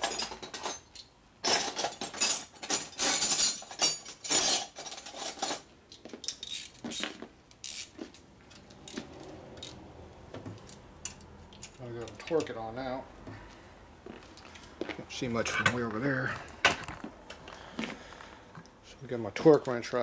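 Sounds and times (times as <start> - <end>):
metal screws and bolts rattling: 0.0 - 9.8, 10.6 - 12.6.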